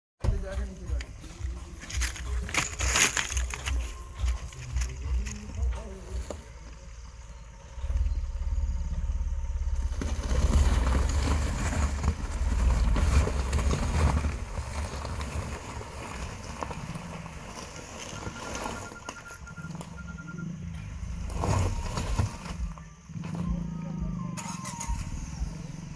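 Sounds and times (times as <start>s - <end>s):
tyres knocking over stones: 0.2s - 6.7s, 9.2s - 20.2s
car engine under load: 0.2s - 25.9s.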